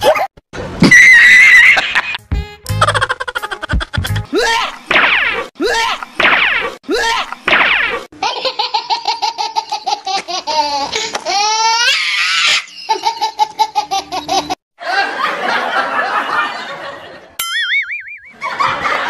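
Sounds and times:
comedy laughter sound effect: 0.1 - 4.8, 8.2 - 19.0
warbling cartoon tone: 17.4 - 18.5.

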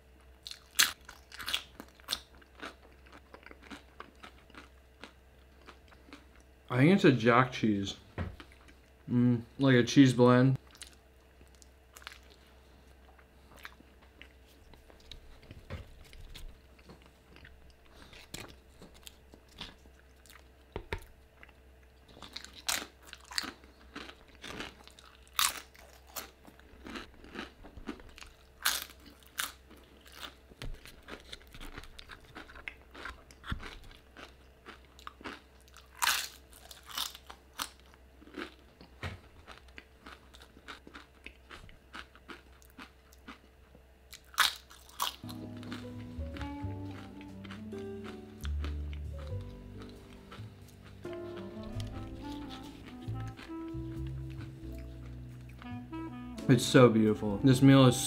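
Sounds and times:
person chewing soft food: 0.2 - 6.5, 8.4 - 9.2, 10.6 - 56.1
tortilla chips crunching: 0.4 - 6.4, 22.1 - 43.5, 44.1 - 55.8.

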